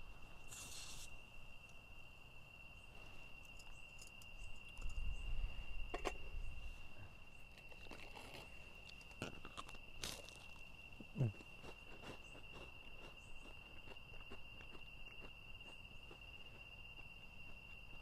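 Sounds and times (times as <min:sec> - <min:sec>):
cricket trilling: 0:00.0 - 0:18.0
short hiss: 0:00.4 - 0:01.2.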